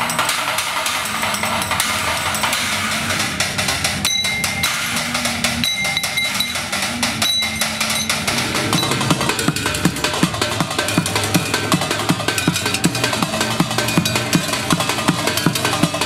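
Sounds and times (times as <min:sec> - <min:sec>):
fast drumming on pans and metal: 0:00.0 - 0:16.0
bright metallic ringing tone: 0:04.0 - 0:09.3.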